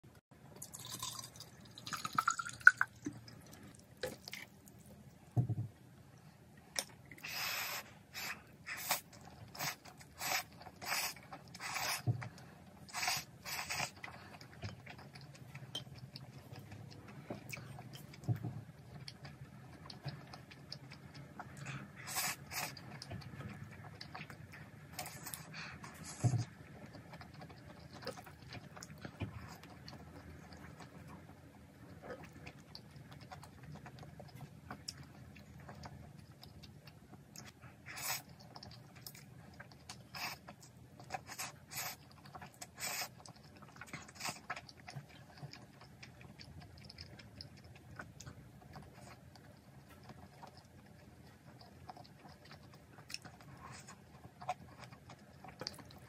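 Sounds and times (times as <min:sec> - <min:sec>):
water poured into plastic cup: 0:00.6 - 0:03.0
slurping and chewing noodles: 0:00.6 - 0:05.1, 0:06.7 - 0:56.0.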